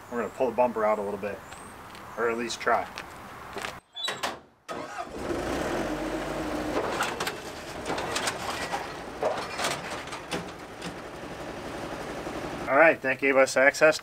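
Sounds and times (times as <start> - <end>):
skid-steer loader engine straining: 4.7 - 12.7
scattered clicks and knocks: 6.8 - 12.1.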